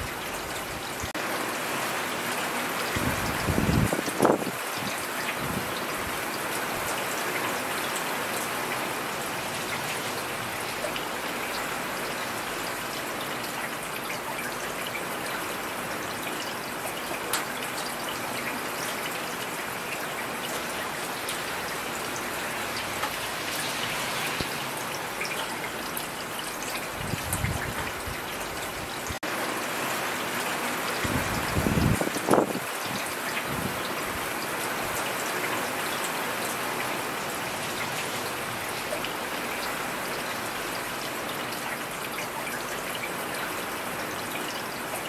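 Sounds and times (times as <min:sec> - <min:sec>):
heavy rain hissing: 0:20.4 - 0:27.4.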